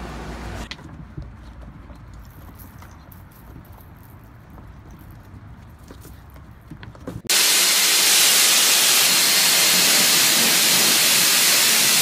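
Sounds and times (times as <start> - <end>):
hair dryer blowing: 7.3 - 12.0.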